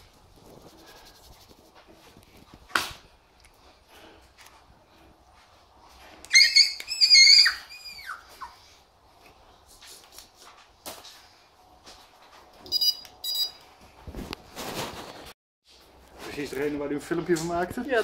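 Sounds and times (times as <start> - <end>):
puppy yelping: 6.3 - 8.6
short electronic beeps: 12.7 - 13.6.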